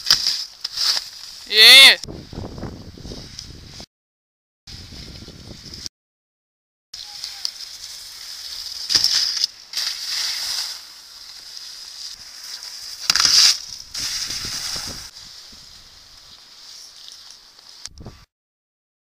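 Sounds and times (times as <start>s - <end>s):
skis scraping over packed snow: 7.0s - 17.8s.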